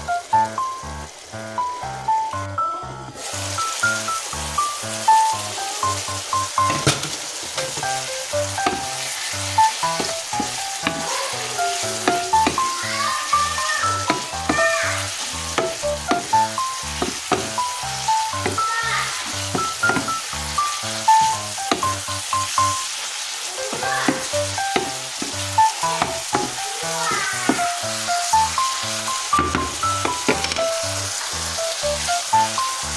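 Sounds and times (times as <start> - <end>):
plucked music with steady bass: 0.0 - 3.2, 7.6 - 18.8
meat and onions sizzling in pan: 0.0 - 32.9
wooden spatula stirring: 8.6 - 17.6.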